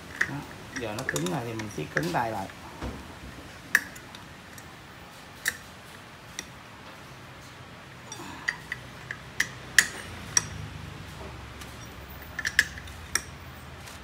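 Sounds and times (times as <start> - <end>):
metal tools clicking: 0.0 - 2.6, 8.1 - 10.8, 11.6 - 13.7.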